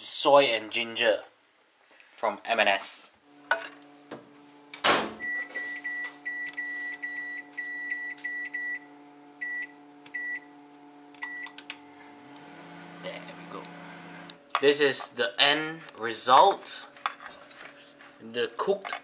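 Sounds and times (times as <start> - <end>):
steady low hum: 3.2 - 16.0
control panel beeps: 5.2 - 8.8, 9.4 - 10.5, 11.2 - 11.6.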